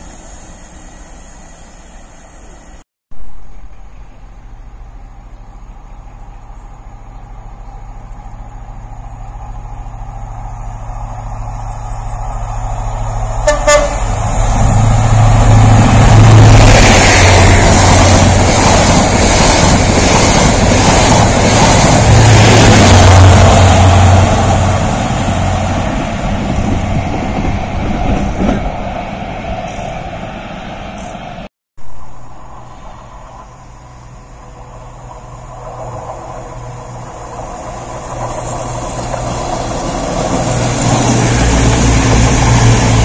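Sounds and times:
train passing: 0.0s - 43.0s
train horn toot: 13.4s - 14.2s.

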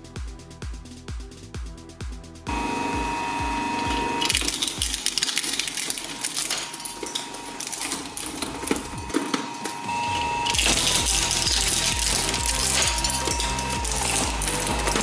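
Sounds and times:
shredder motor whine: 2.5s - 5.2s, 5.9s - 15.0s
shredder crunching metal toy: 3.8s - 15.0s.

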